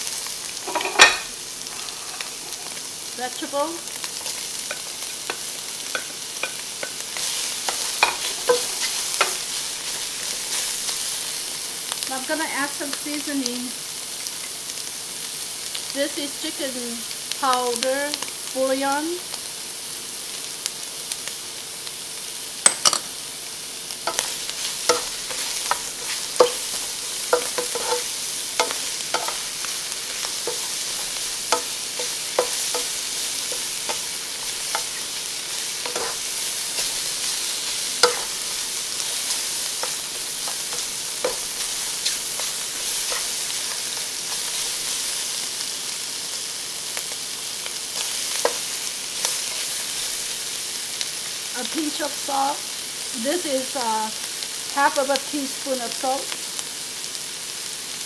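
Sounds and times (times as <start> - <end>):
food sizzling in a wok: 0.0 - 58.0
spatula scraping a pan: 0.6 - 2.9, 4.1 - 11.5, 24.1 - 45.4.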